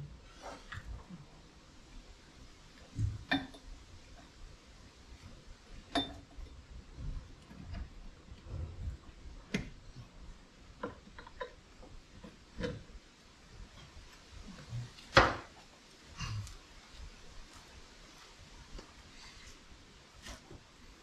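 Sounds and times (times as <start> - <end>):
soft scraping and rustling: 16.4 - 21.0.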